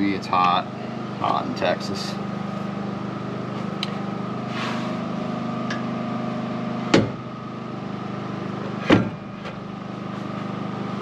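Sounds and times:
mechanical hum with whine: 0.0 - 11.0
knock on metal saw: 6.9 - 7.2.

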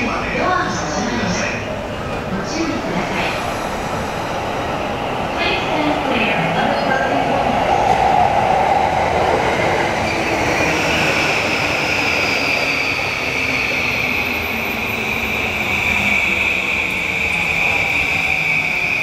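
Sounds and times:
steady high squeal: 10.0 - 19.0.

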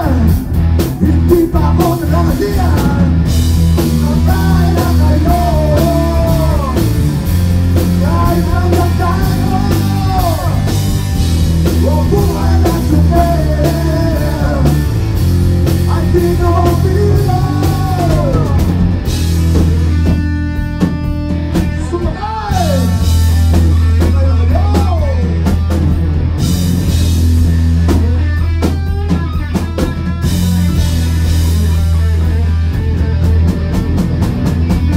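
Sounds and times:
man singing into a microphone: 0.0 - 3.2, 4.0 - 7.0, 8.0 - 10.7, 11.8 - 14.9, 15.9 - 18.7, 21.8 - 23.0, 24.0 - 25.4
drum kit: 0.0 - 34.9
electric guitar: 0.0 - 34.9.

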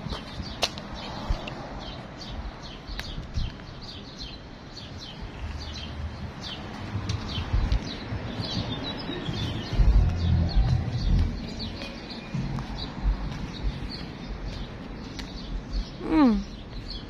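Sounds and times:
songbirds chirping: 0.0 - 17.0
low outdoor rumble: 5.1 - 16.9.

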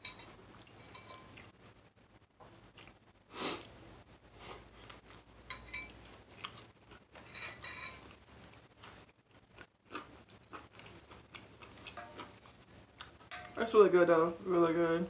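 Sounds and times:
utensil clinking against bowl: 0.0 - 1.4, 5.5 - 6.0, 7.2 - 8.1, 13.3 - 13.6.

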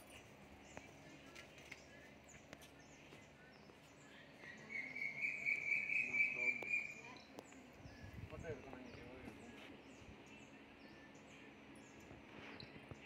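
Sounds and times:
faint high bird chirps: 1.7 - 8.2.

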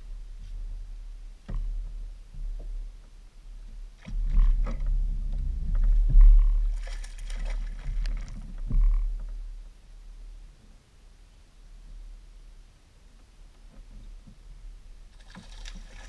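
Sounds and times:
water splashing: 6.7 - 8.4, 15.1 - 16.0.

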